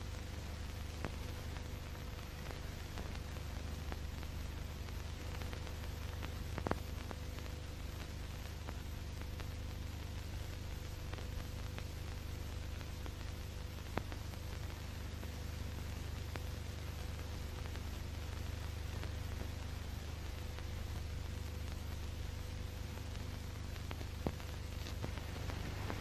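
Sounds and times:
film soundtrack hiss and hum: 0.0 - 26.0
faint clicks: 4.9 - 10.0, 22.8 - 26.0.

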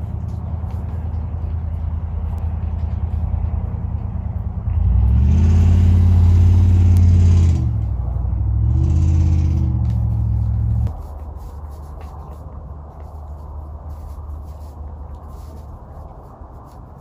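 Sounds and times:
motor engine humming: 0.0 - 11.1.

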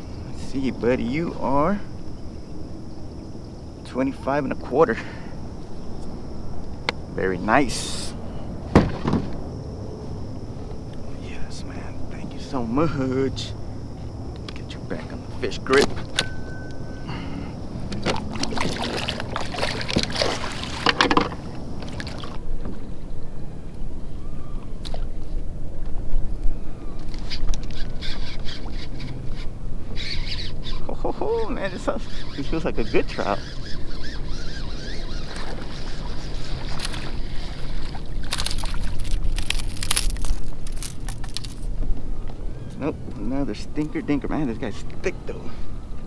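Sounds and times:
water lapping: 17.1 - 22.5, 27.7 - 40.9
fishing gear clicking and rattling: 17.8 - 22.1, 34.0 - 41.8
fish splashing at surface: 18.0 - 21.2.

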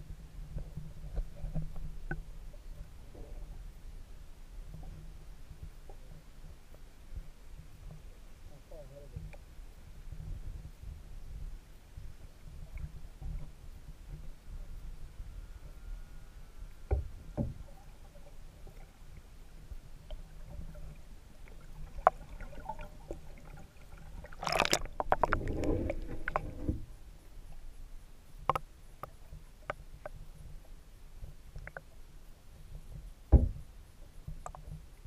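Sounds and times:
underwater rumble of moving water: 0.0 - 35.0
churning bubbling water: 20.1 - 26.8
sharp knocks on boat hull: 33.3 - 33.6.

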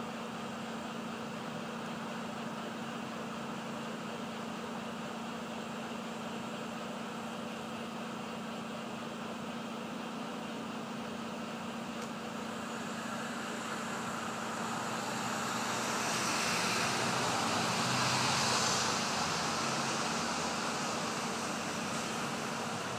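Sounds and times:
car passing by: 12.6 - 22.9.

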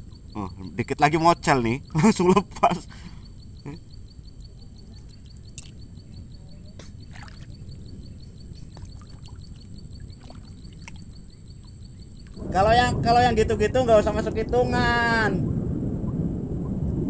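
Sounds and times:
faint small ticks and taps: 4.9 - 5.8, 8.7 - 12.4
low rumble: 7.6 - 17.0.

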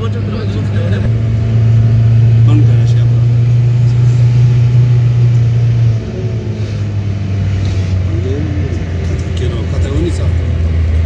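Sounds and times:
vehicle engine drone from inside: 0.0 - 11.0.

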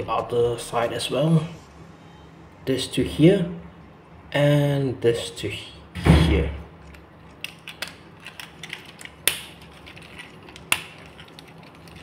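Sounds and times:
sharp plastic snaps: 7.4 - 9.6
plastic parts clicking: 7.4 - 12.0.

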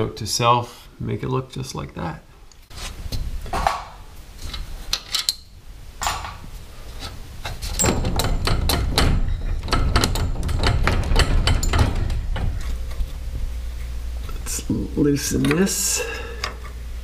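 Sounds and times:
metal springs clicking and rattling: 7.5 - 13.2.

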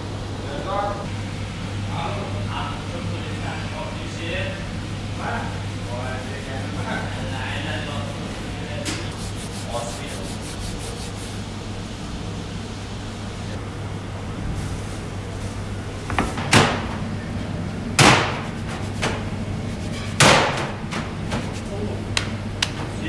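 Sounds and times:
steady low hum: 0.0 - 23.0
dough thumping on wooden table: 16.1 - 16.8.

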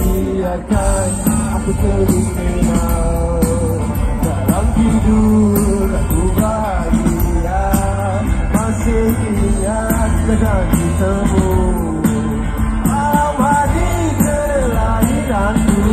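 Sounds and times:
live rock band playing: 0.0 - 15.9.

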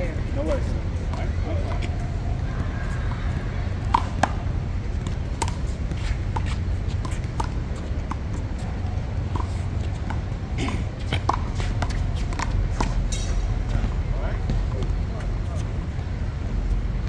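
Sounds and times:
low city rumble: 0.0 - 17.0
footstep ticks and scuffs: 4.9 - 16.0.

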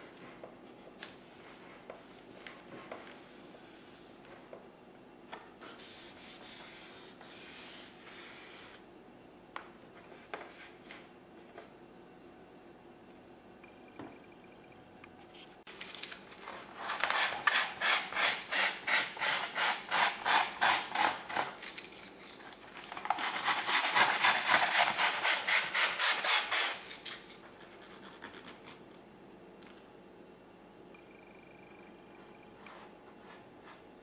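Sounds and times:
rubbing strokes like hand sanding: 16.8 - 21.1, 23.2 - 26.9.

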